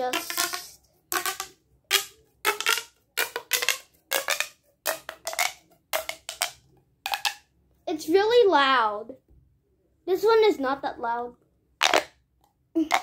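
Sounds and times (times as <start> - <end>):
plastic pop tube popping: 0.0 - 7.5, 11.8 - 13.0.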